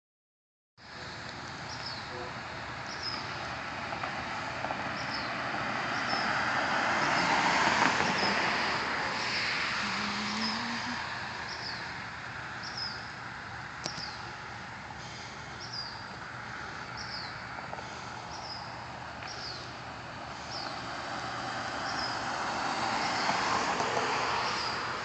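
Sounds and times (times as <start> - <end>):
car passing: 1.2 - 25.0
bird chirping: 2.8 - 3.4, 6.0 - 6.3, 10.0 - 12.0, 12.6 - 13.2, 13.8 - 14.4, 15.6 - 17.4, 18.2 - 19.8, 20.5 - 20.9.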